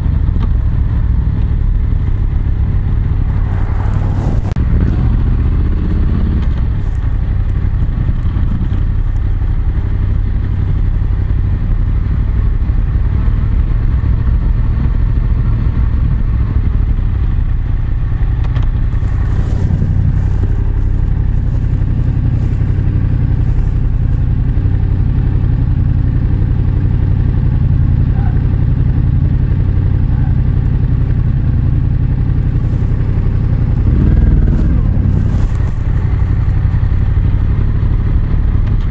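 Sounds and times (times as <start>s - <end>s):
motorcycle engine running: 0.0s - 38.9s
fabric rustling: 34.4s - 36.3s.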